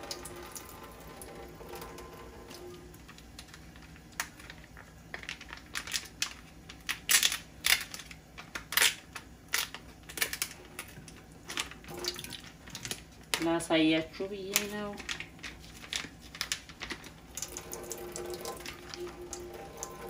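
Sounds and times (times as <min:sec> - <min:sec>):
plastic packaging crinkling: 0:02.9 - 0:13.6, 0:14.2 - 0:20.0.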